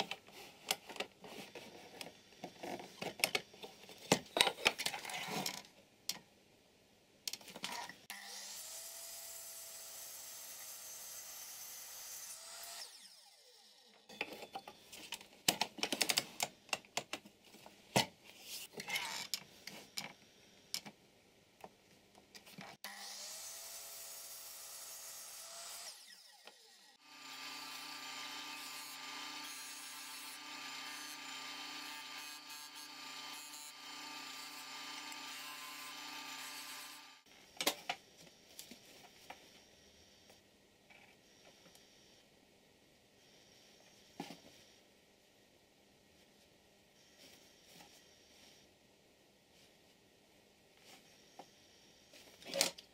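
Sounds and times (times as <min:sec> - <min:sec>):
miter saw cutting wood: 0:22.8 - 0:37.3.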